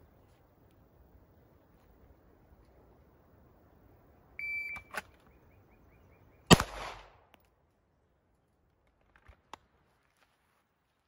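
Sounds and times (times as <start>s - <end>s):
shot timer beep: 4.4s - 4.9s
pistol shot with echo: 6.5s - 7.2s.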